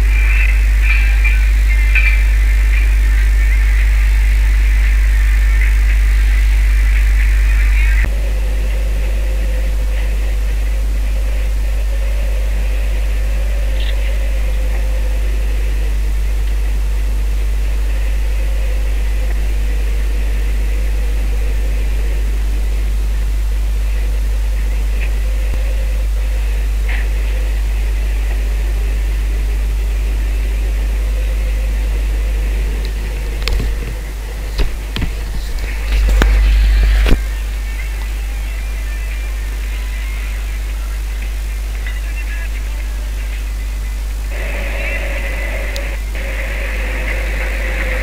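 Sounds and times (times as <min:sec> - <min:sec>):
boat engine running: 0:00.0 - 0:48.0.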